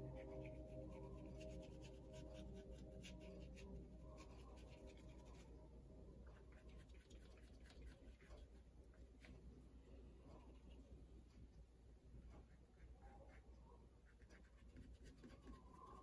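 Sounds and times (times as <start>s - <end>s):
paintbrush scratching on paper: 0.0s - 5.6s, 6.3s - 9.4s, 12.4s - 16.0s
soft sustained musical tones: 0.0s - 7.1s.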